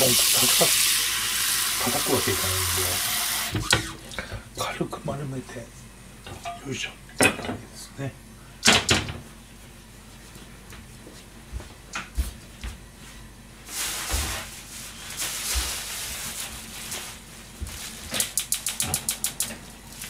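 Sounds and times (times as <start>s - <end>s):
plastic bag rustling: 13.6s - 18.2s.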